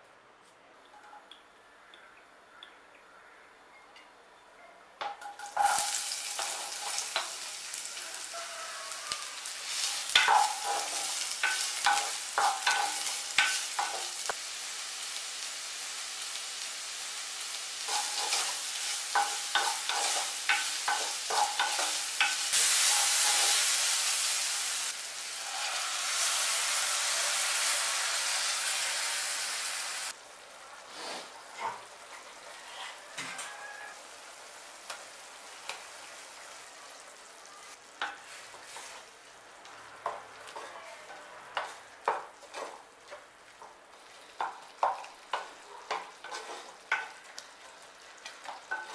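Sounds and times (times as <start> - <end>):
onions sizzling in hot oil: 5.1 - 48.9
wooden spatula scraping pot: 41.6 - 42.8, 45.4 - 47.2.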